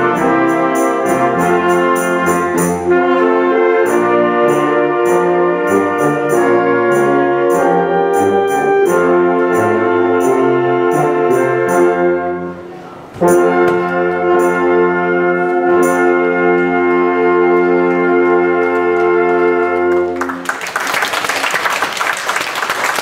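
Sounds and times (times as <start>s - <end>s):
wind band held chord: 0.0s - 20.1s
applause: 19.3s - 23.0s.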